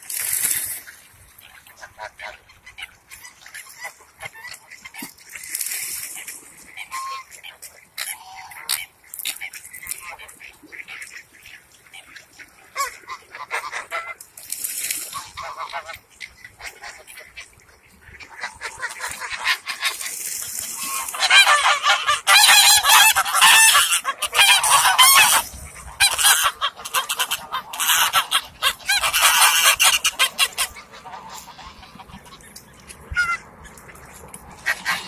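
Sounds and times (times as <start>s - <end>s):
geese honking: 6.7s - 8.9s, 18.2s - 33.4s, 34.6s - 35.0s.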